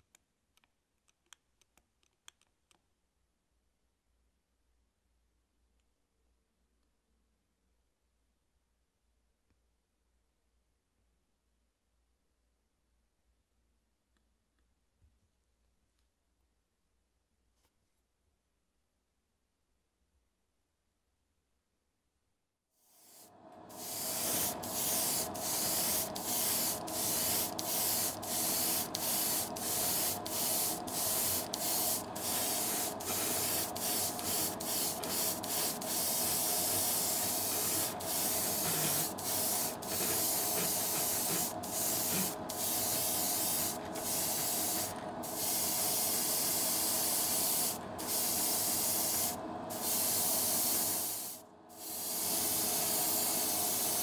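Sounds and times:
airbrush spraying hiss: 0:23.0 - 0:54.0
steady hum: 0:23.0 - 0:54.0.

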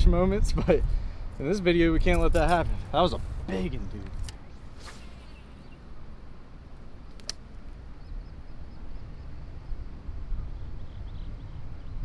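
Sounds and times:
wind rumbling on microphone: 0:00.0 - 0:12.0
faint bird chirps: 0:04.5 - 0:06.0, 0:07.9 - 0:09.8
sharp click: 0:07.1 - 0:07.4.

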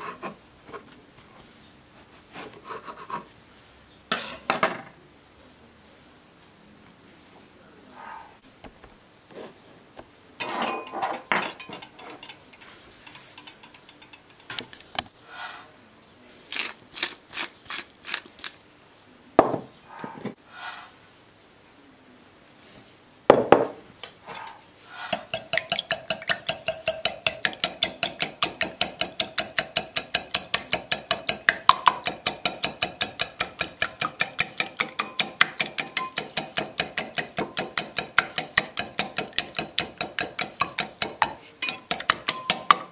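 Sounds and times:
whisk clinking in glass bowl: 0:10.4 - 0:14.5, 0:25.1 - 0:42.9
kitchen clicks and taps: 0:10.7 - 0:14.8, 0:25.1 - 0:42.9.

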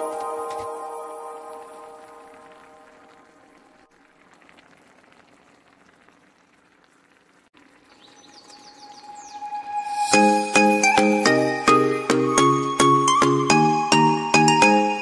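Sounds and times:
music: 0:00.0 - 0:03.3, 0:09.0 - 0:15.0
stew simmering and bubbling: 0:00.0 - 0:10.7.

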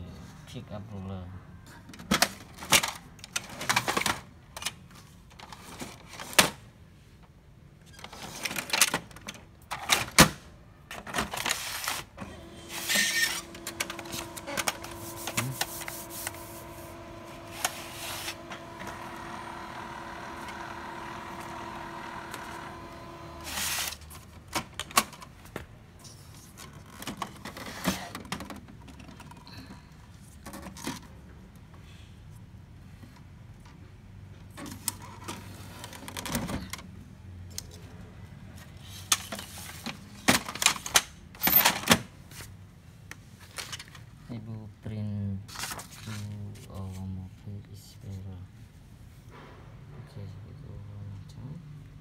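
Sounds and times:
printer motors humming: 0:12.2 - 0:23.8.

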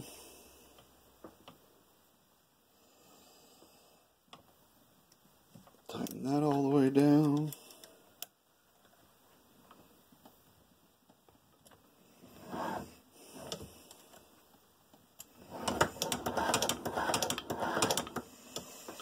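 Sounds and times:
rapid clicks and metallic clattering: 0:15.6 - 0:18.2.

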